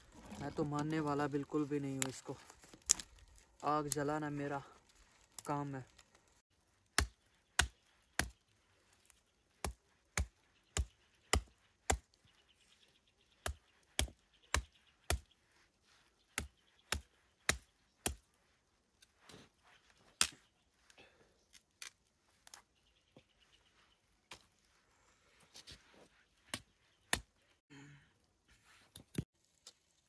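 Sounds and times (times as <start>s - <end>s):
knife chopping wood: 6.9s - 8.4s, 9.6s - 12.1s, 13.4s - 15.3s, 16.3s - 18.2s.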